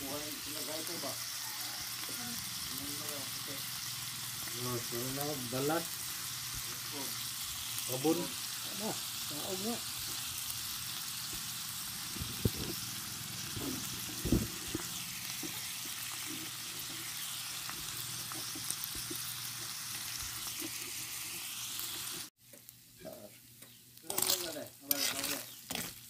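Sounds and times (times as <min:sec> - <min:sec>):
meat sizzling in a wok: 0:00.0 - 0:26.0.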